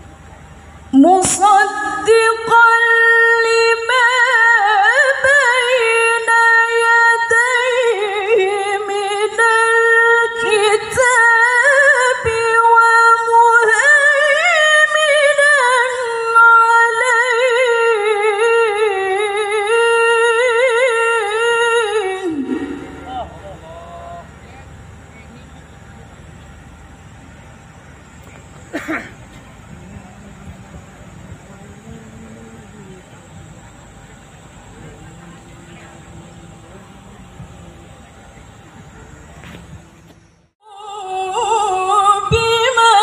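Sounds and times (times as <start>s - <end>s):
woman chanting over sound system: 1.0s - 24.5s, 29.7s - 38.6s.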